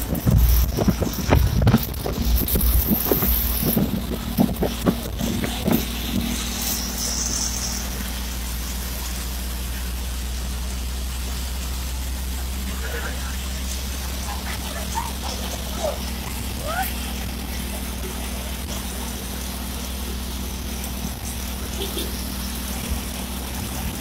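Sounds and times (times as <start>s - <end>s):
motorcycle engine humming: 0.0s - 24.0s.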